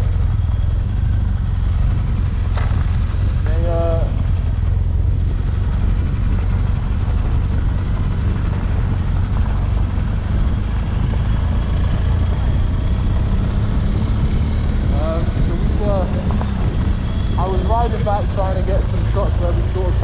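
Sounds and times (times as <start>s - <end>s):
motorcycle engine rumbling: 0.0s - 20.0s
wind noise on microphone: 6.0s - 18.6s.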